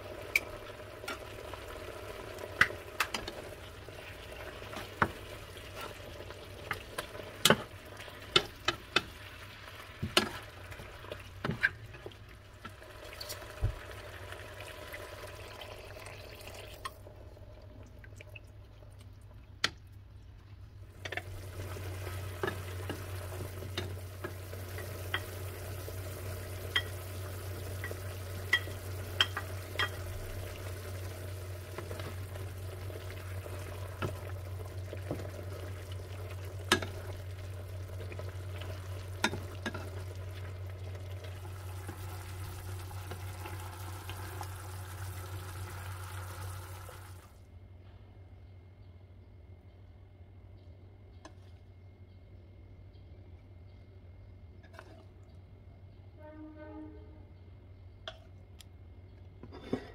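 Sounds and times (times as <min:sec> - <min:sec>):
chicken sizzling in frying pan: 0:00.0 - 0:11.5, 0:21.2 - 0:47.3.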